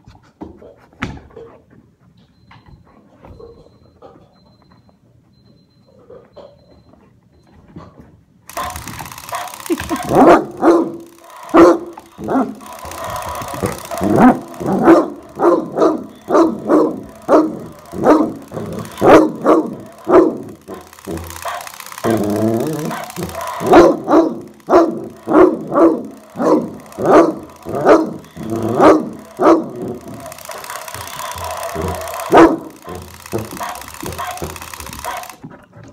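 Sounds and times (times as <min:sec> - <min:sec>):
dog barking deeply: 0:14.2 - 0:18.4, 0:22.9 - 0:30.0.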